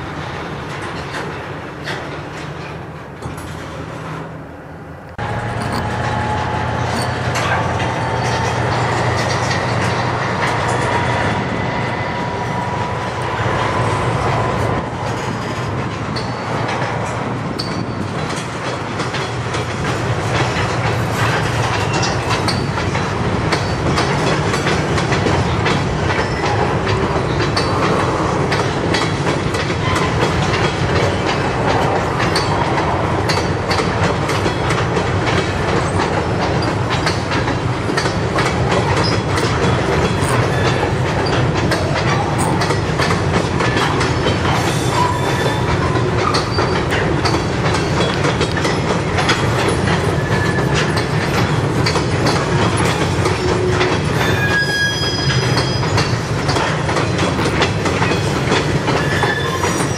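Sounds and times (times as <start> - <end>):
freight cars rumbling over rail joints: 0.0 - 59.9
thin wheel squeal: 54.2 - 56.0, 59.0 - 59.9.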